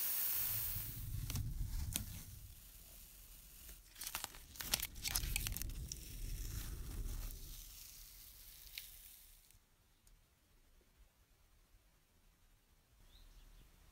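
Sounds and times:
tape peeling off: 0.0s - 9.6s.

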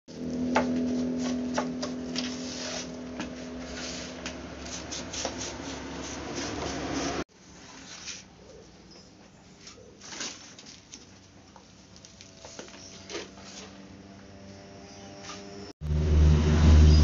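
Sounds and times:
scraping and brushing on wooden boards: 0.6s - 8.4s, 9.3s - 11.2s, 12.4s - 13.9s.

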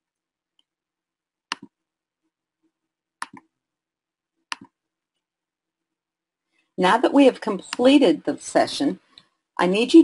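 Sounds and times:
computer mouse clicks: 1.5s - 1.8s, 3.2s - 3.5s, 4.5s - 4.8s.

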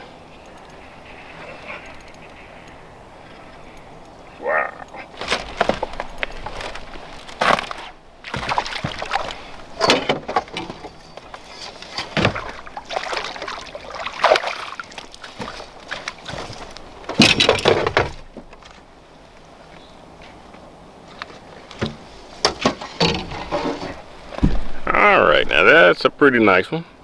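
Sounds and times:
water splashing and sloshing: 0.0s - 19.7s, 20.4s - 25.8s
knocks against boat: 24.4s - 24.8s.

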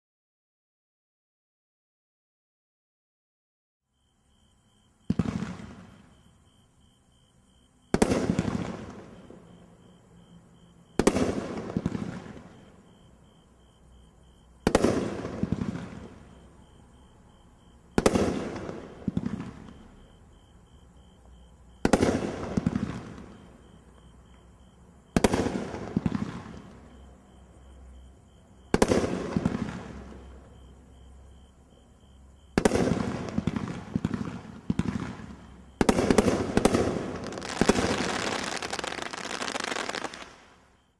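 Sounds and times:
firework bangs: 5.0s - 6.2s, 7.8s - 9.5s, 10.9s - 12.7s, 14.6s - 16.4s, 17.9s - 20.1s, 21.7s - 23.5s, 25.1s - 26.8s, 28.7s - 30.4s, 32.5s - 40.8s.

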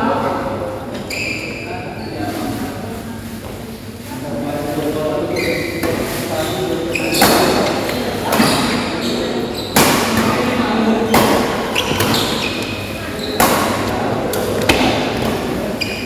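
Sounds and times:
background chatter: 0.0s - 16.0s
shoe squeaks: 1.0s - 2.3s, 5.3s - 9.8s, 11.7s - 13.5s, 15.7s - 16.0s
rackets hitting shuttlecock: 9.7s - 10.4s, 13.4s - 15.3s.

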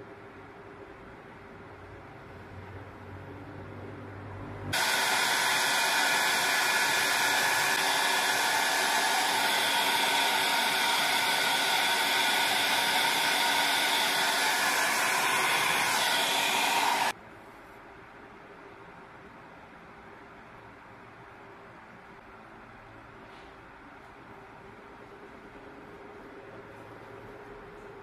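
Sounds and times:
hair dryer blowing: 4.7s - 17.2s.

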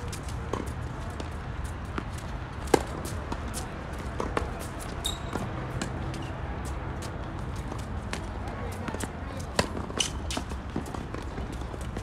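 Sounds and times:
tennis ball bouncing: 2.0s - 6.2s, 8.9s - 12.0s
high squeak: 5.0s - 5.4s.

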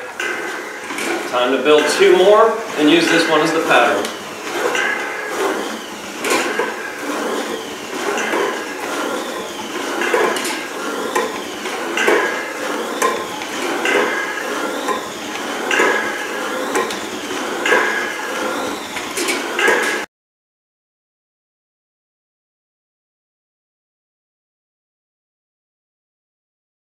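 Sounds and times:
flywheel and pulleys whirring: 0.0s - 20.1s
thin rising and falling whine: 0.0s - 20.1s.

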